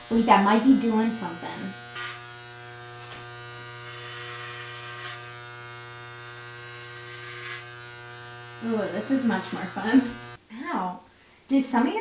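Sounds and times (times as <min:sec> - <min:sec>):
electric hair clippers buzzing: 0:00.0 - 0:10.4.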